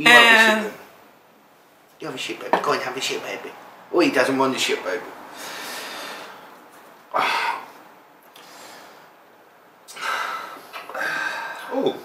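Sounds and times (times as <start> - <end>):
man breathing noisily: 5.3 - 6.5, 8.3 - 9.2, 9.9 - 11.7.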